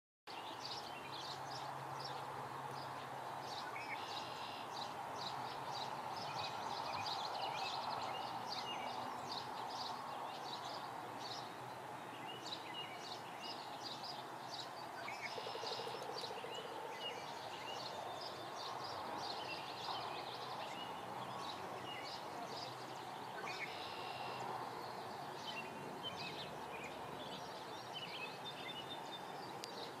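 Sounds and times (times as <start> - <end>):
outdoor ambient noise: 0.3 - 30.0
bird chirps and calls: 19.3 - 24.4.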